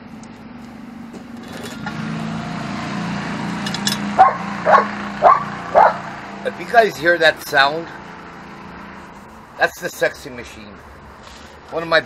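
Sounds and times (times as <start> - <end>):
small engine running: 0.2 - 7.0
dog barking: 4.2 - 6.1.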